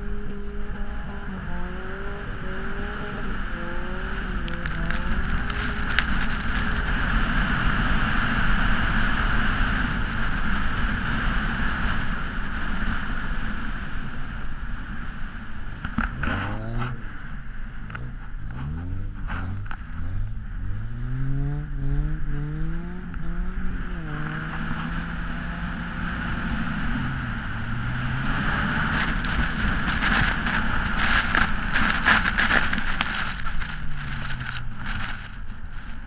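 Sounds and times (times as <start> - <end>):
car engine running: 0.0 - 20.9, 26.2 - 36.0
wind and snow rushing: 1.7 - 13.2, 26.3 - 36.0.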